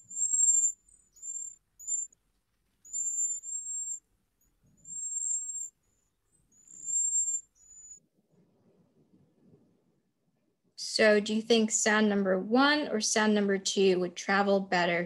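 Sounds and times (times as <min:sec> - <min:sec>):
bird singing high thin notes: 0:00.0 - 0:02.1, 0:02.9 - 0:04.0, 0:04.8 - 0:08.0.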